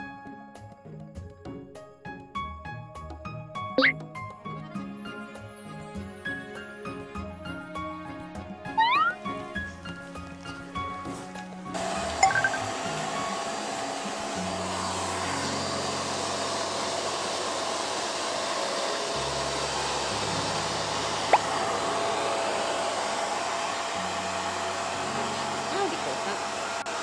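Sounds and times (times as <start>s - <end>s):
hair dryer blowing: 11.8s - 27.0s.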